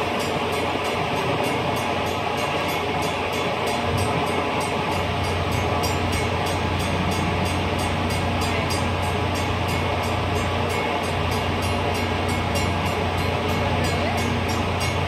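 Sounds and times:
train wheels rumbling on rails: 0:00.0 - 0:15.0.

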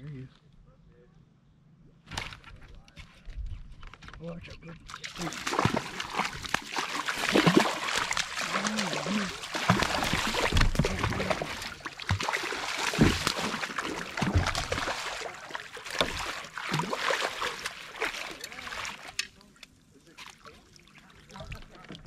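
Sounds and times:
landing net into water: 0:04.9 - 0:19.5
fish splashing at surface: 0:05.0 - 0:19.4.

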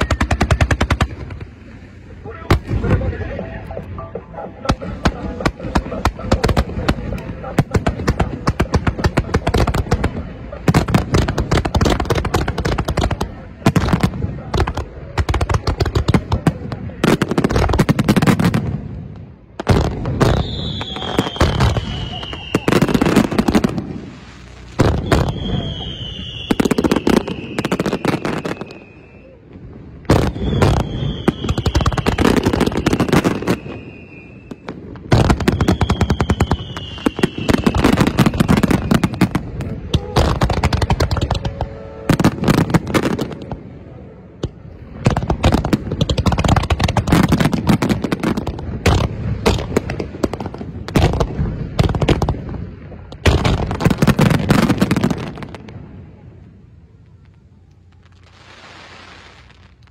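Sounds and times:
firework whistles: 0:00.0 - 0:01.4, 0:20.2 - 0:29.5, 0:30.1 - 0:43.5, 0:57.9 - 0:59.9
fireworks bangs and crackles: 0:00.0 - 0:59.9.

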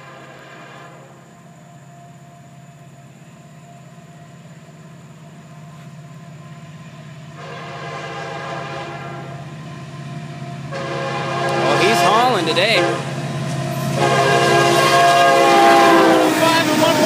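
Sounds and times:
train air horn blast: 0:00.0 - 0:01.2, 0:07.4 - 0:09.4, 0:10.7 - 0:13.2, 0:13.8 - 0:17.0
diesel locomotive rumbling: 0:00.0 - 0:17.0.

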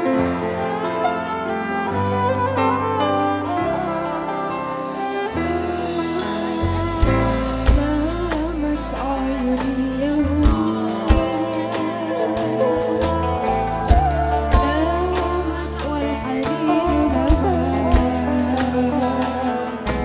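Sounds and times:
bass: 0:00.0 - 0:20.0
drums: 0:00.0 - 0:20.0
keyboard: 0:00.0 - 0:20.0
violin: 0:00.0 - 0:20.0
woman singing: 0:07.0 - 0:20.0.

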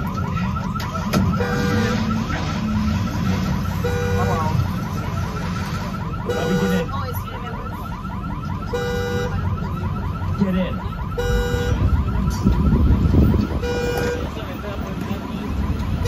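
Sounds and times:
car alarm horn-like tone: 0:01.2 - 0:02.3, 0:03.7 - 0:04.8, 0:06.2 - 0:07.2, 0:08.6 - 0:09.6, 0:11.1 - 0:12.3, 0:12.9 - 0:14.4
car alarm warbling whoop: 0:05.7 - 0:14.2.

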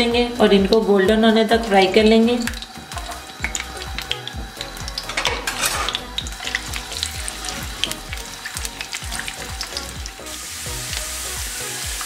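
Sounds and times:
garlic sizzling in a frying pan: 0:00.0 - 0:12.0
sharp pops of hot oil: 0:02.4 - 0:10.2.

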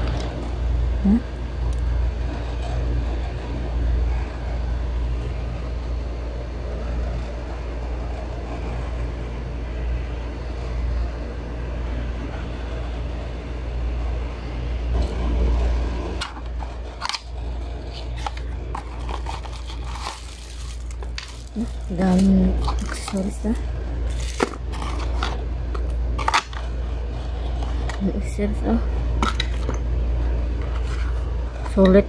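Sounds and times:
steady low hum: 0:00.0 - 0:32.0
packaging being handled: 0:16.2 - 0:25.4.

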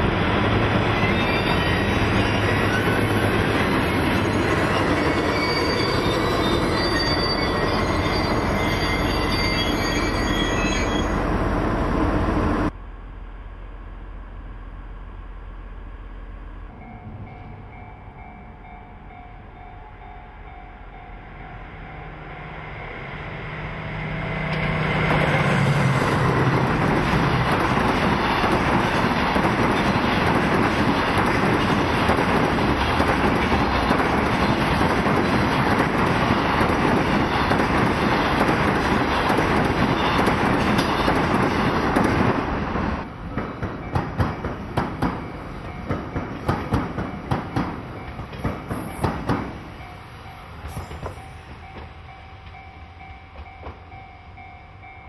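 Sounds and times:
freight train wheels rumbling: 0:00.0 - 0:12.8, 0:15.3 - 0:55.0
diesel locomotive engine hum: 0:10.8 - 0:55.0.

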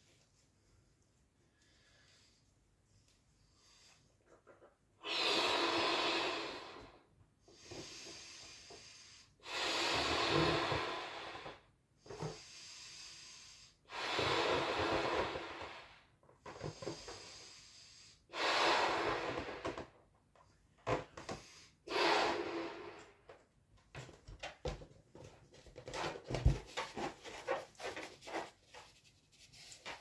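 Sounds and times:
person blowing up balloon: 0:05.0 - 0:07.0, 0:09.4 - 0:11.6, 0:12.2 - 0:19.8, 0:21.4 - 0:23.2.

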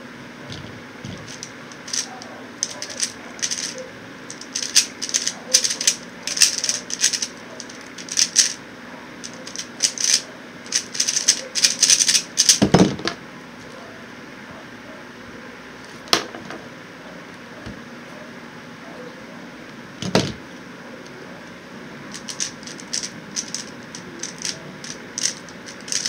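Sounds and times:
fan hum: 0:00.0 - 0:26.0
puzzle cube layers clicking: 0:01.1 - 0:03.7, 0:04.3 - 0:08.6, 0:09.2 - 0:12.6, 0:22.1 - 0:26.0.

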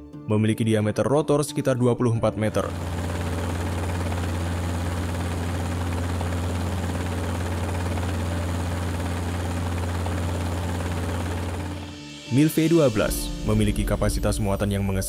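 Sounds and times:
helicopter hovering: 0:02.4 - 0:13.7.

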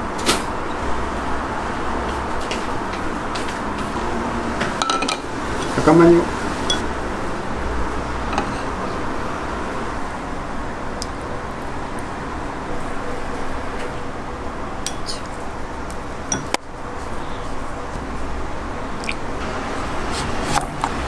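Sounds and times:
steady background hiss: 0:00.0 - 0:21.0
spoon clinking ceramic dishes: 0:06.7 - 0:06.9, 0:16.3 - 0:16.6.

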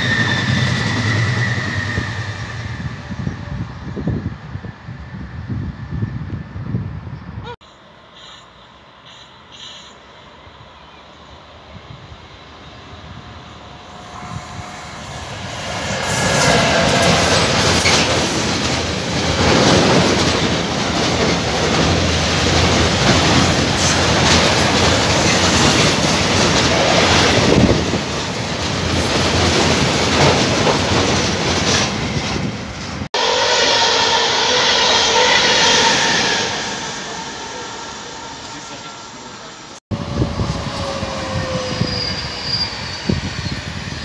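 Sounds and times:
passenger train whine: 0:00.0 - 0:44.0
train wheels rumbling over rails: 0:11.2 - 0:44.0.

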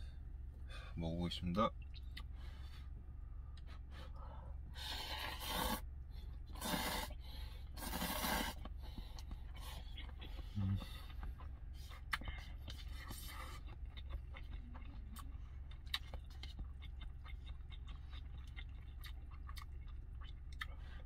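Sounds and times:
steady low hum: 0:00.0 - 0:21.0
slurping noodles: 0:04.9 - 0:05.8, 0:06.6 - 0:07.2, 0:07.8 - 0:08.6.

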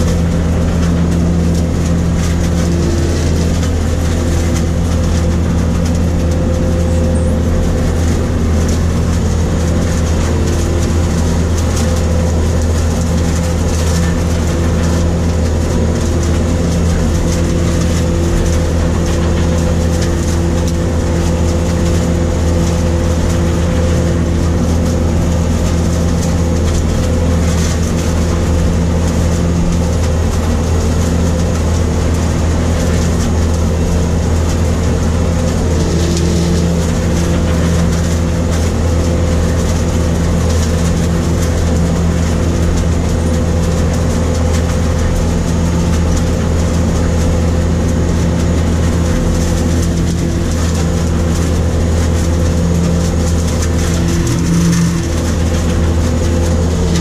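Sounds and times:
harvester engine drone: 0:00.0 - 0:57.0.

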